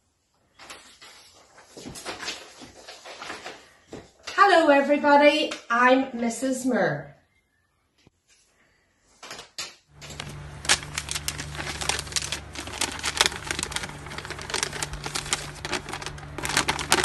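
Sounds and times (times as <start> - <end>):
paper crinkling being unfolded: 0.6 - 3.9, 9.9 - 17.0
low steady hum: 9.9 - 17.0.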